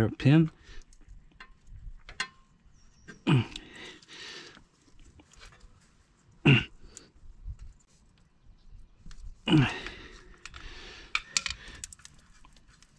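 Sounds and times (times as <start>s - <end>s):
man grunting: 3.2s - 3.8s, 6.5s - 6.7s, 9.5s - 10.0s
pick tool clicks and scrapes: 10.3s - 12.9s.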